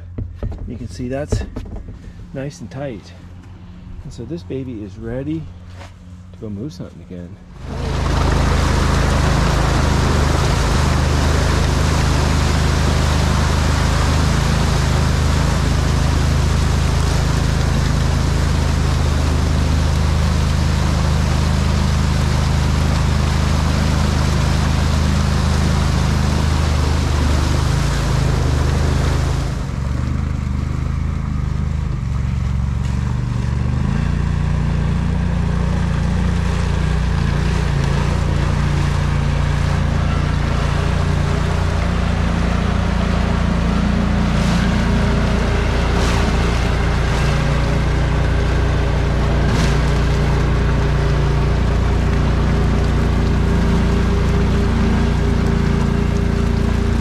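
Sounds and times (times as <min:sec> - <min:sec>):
vehicle engine droning: 0:00.0 - 0:57.0.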